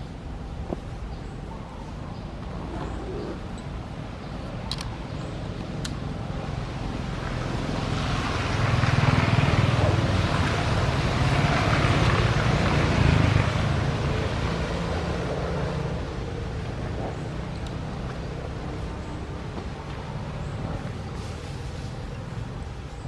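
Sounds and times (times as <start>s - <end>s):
vehicle engine rumble: 0.0s - 23.0s
road hiss: 5.4s - 23.0s.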